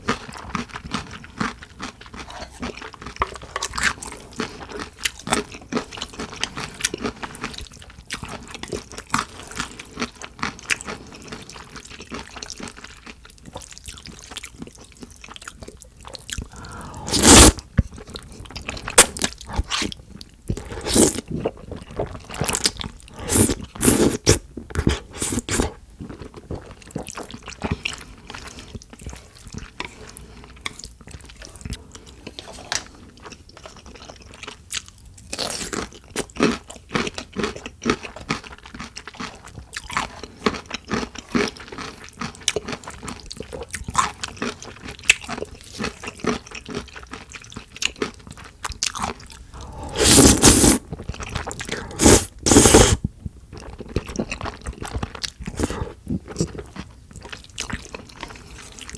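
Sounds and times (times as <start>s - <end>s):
wet sticky chewing: 13.4s - 28.0s.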